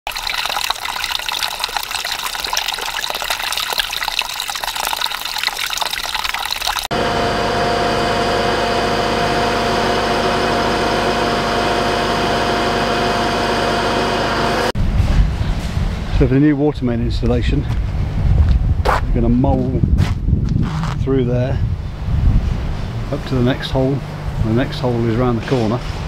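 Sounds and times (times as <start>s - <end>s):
water splashing onto rocks: 0.1s - 6.9s
machine drone: 6.9s - 16.2s.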